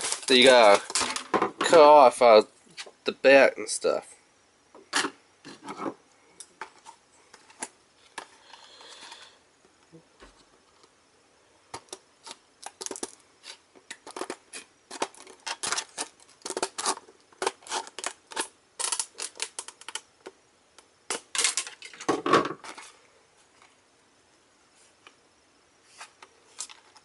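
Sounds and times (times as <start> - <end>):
stiff plastic crackling: 0.0 - 2.1, 11.7 - 13.2, 13.8 - 20.4.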